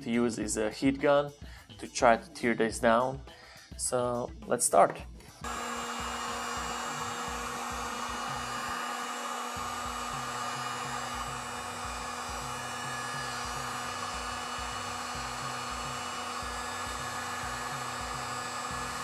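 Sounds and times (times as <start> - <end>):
heat gun blowing air: 5.4 - 19.0
heat gun motor hum: 5.4 - 19.0.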